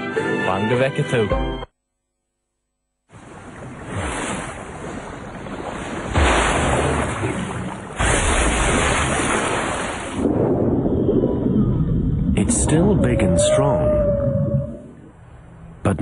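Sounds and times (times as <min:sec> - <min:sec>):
sea water rushing: 0:03.1 - 0:15.0
whale crashing into water splash: 0:03.3 - 0:11.8.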